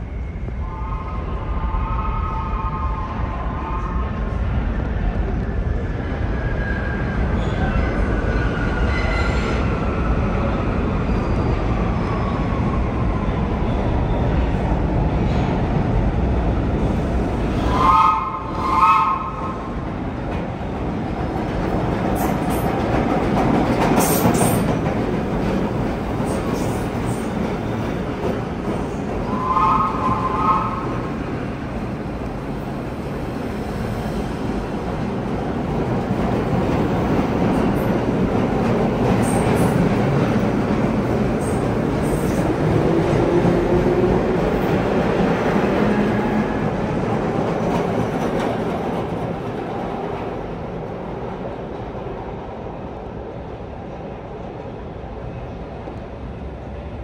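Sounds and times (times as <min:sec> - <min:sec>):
subway wheels rumbling on rail: 0:00.0 - 0:57.0
train horn blast: 0:17.7 - 0:19.6, 0:29.3 - 0:31.0
train clatter: 0:19.4 - 0:31.1.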